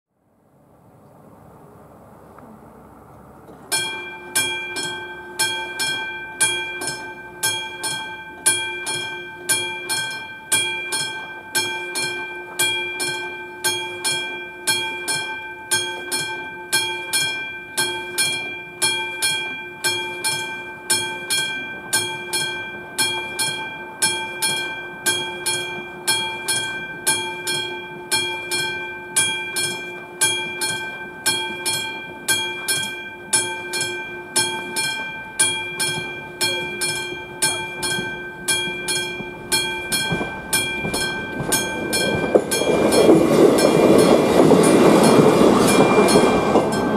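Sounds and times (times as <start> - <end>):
level crossing warning bell ringing: 3.7 - 46.9.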